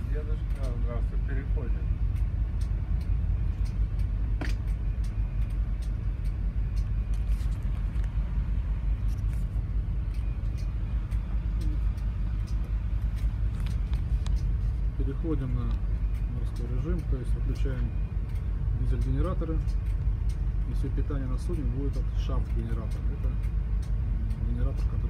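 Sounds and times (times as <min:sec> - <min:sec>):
ship engines rumbling: 0:00.0 - 0:25.0.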